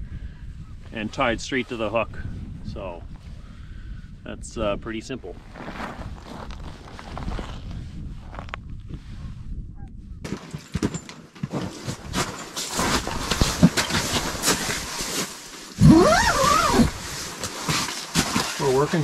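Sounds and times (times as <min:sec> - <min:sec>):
nylon bag crackling: 0:11.8 - 0:19.0
drawn-out vocal cry: 0:15.8 - 0:16.8.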